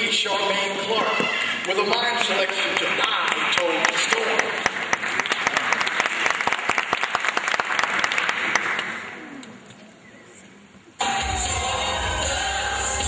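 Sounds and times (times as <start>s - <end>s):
audience applauding: 1.1s - 9.6s.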